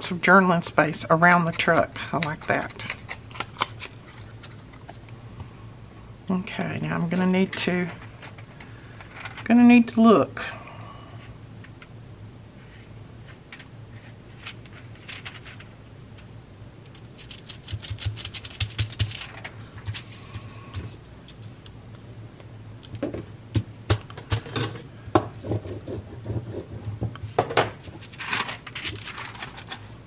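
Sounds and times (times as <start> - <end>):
paper rustling and tapping: 16.9 - 20.1, 27.4 - 29.9.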